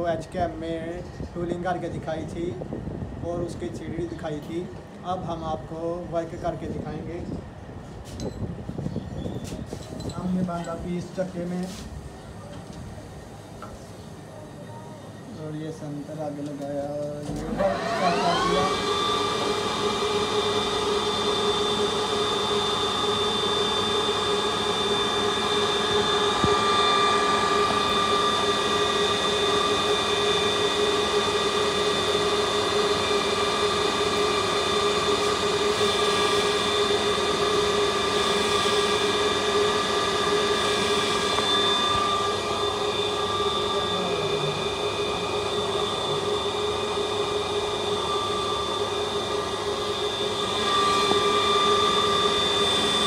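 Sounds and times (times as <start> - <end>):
lathe spindle whine: 15.0 - 53.0.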